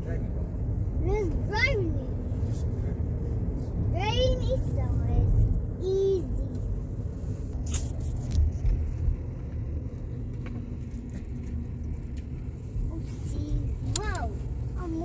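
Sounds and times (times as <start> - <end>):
car road rumble from inside: 0.0 - 15.0.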